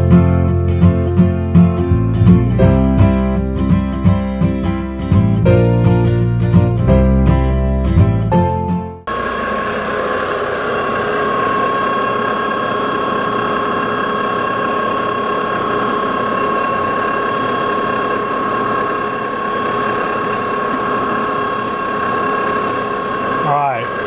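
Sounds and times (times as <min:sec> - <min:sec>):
motor humming with whine: 0:09.1 - 0:24.0.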